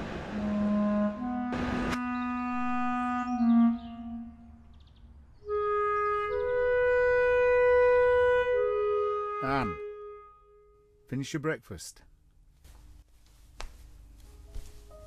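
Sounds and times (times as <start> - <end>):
woodwind playing long notes: 0.0 - 4.6, 5.4 - 10.9.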